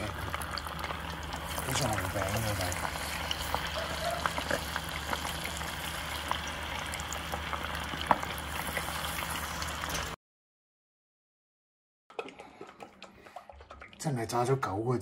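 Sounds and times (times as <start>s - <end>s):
chicken sizzling in hot oil: 0.0s - 10.2s.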